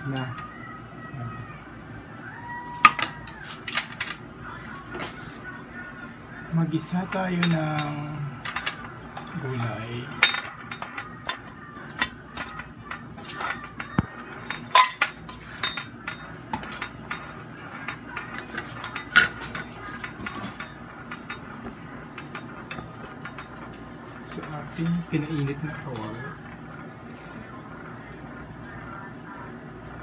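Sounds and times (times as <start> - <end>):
kitchen utensils clinking: 2.7 - 4.2, 6.8 - 26.3.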